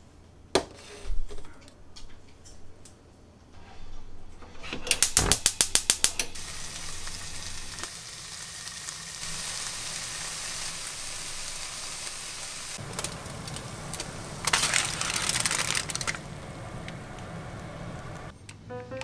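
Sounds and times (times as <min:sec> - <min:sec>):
gas burner hissing: 0:04.9 - 0:18.3.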